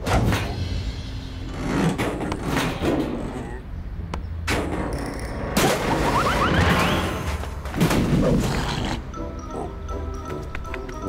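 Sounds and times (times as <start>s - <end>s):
light music: 8.5s - 11.0s.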